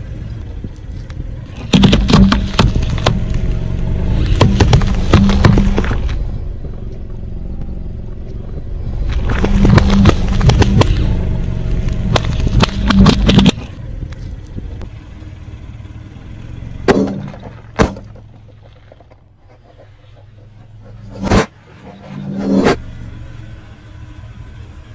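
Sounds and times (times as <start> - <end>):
car engine running low: 0.0 - 24.9
tyre rolling over gritty asphalt: 0.3 - 6.8, 8.4 - 14.8, 16.8 - 22.7
rubber balls bursting: 1.5 - 6.2, 9.2 - 13.8.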